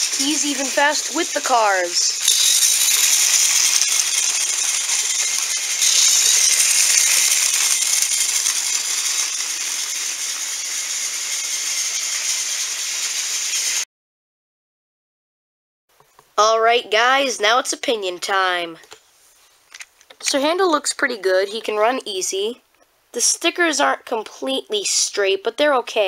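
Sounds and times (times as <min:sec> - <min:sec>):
toy train rattling whir: 0:00.0 - 0:13.8.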